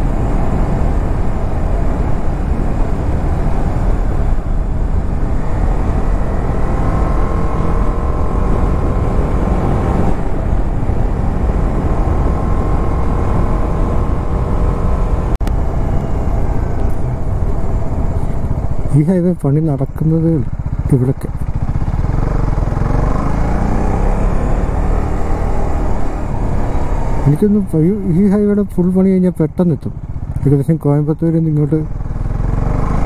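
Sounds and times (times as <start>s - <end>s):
wind rush on microphone: 0.0s - 18.9s
motorcycle engine running: 0.0s - 33.0s.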